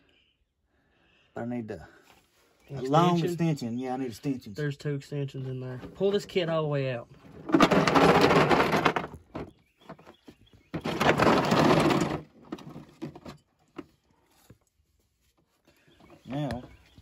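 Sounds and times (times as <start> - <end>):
plastic case dragged on gravel: 7.2 - 9.6, 10.6 - 13.4
tools rattling inside case: 7.2 - 13.9.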